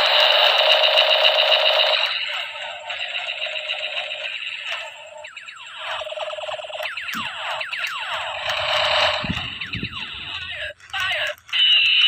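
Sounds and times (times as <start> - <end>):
toy gun machine-gun rattle: 0.0 - 12.0
falling laser-like sweeps: 1.8 - 10.6.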